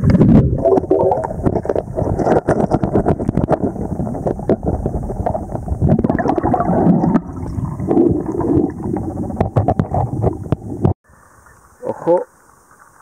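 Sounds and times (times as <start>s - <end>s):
underwater low rush: 1.2s - 11.0s
underwater small clicks and knocks: 9.2s - 11.0s.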